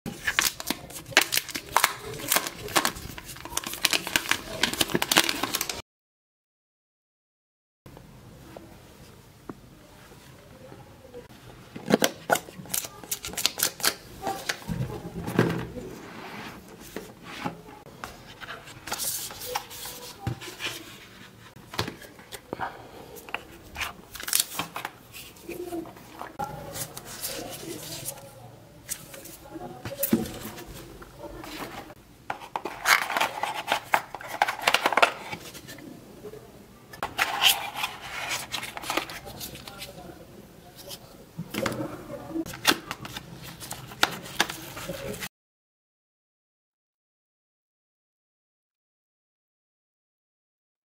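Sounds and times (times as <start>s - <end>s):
cardboard box sliding and rustling: 15.9s - 17.6s.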